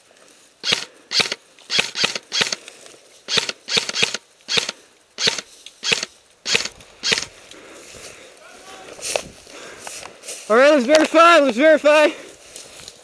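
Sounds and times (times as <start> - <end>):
airsoft rifle shots: 0.6 - 2.6, 3.3 - 7.3.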